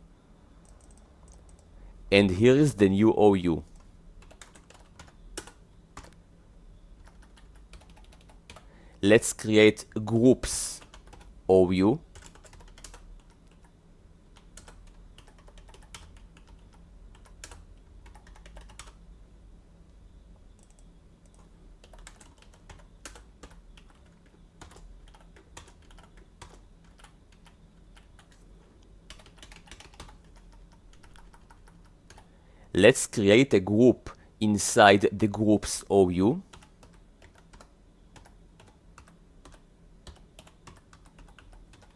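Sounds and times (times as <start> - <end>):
computer keyboard typing: 0.6 - 1.7, 3.7 - 6.2, 7.0 - 8.7, 10.1 - 11.3, 12.1 - 13.7, 14.3 - 19.0, 20.6 - 28.4, 29.1 - 32.3, 36.5 - 41.9.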